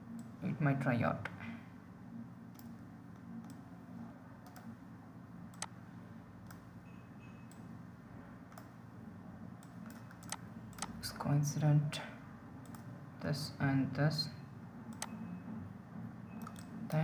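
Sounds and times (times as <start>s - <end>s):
computer mouse clicking: 2.5s - 3.6s, 4.4s - 4.8s, 5.5s - 5.8s, 6.4s - 6.7s, 8.5s - 8.8s, 9.6s - 11.0s, 12.6s - 12.9s, 14.9s - 15.2s, 16.3s - 16.8s.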